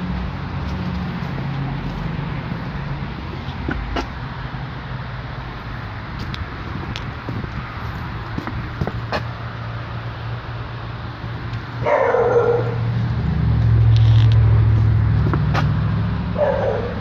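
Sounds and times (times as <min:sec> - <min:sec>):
vehicle engine rumble passing: 0:00.0 - 0:17.0
dog barking: 0:11.8 - 0:12.8, 0:16.4 - 0:17.0.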